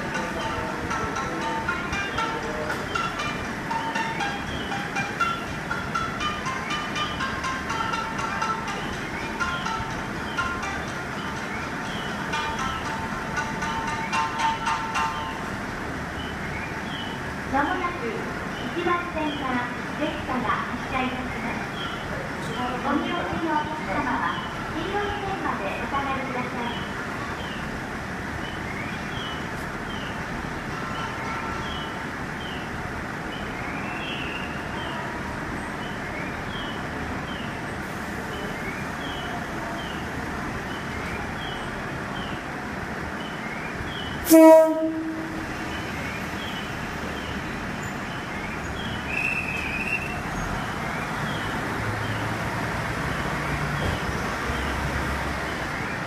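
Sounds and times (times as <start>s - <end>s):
diesel railcar engine humming: 0.0s - 56.0s
high whistling chirp: 47.8s - 50.5s.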